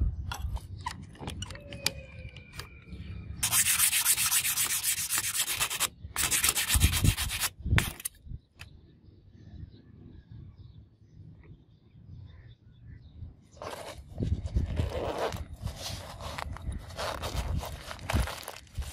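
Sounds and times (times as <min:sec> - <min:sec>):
sandpaper rasping on blade: 0:03.4 - 0:08.1.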